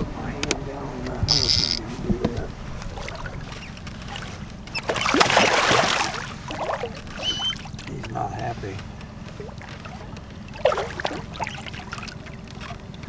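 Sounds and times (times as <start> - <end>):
fish splashing and thrashing in water: 2.7 - 8.0, 9.2 - 13.0.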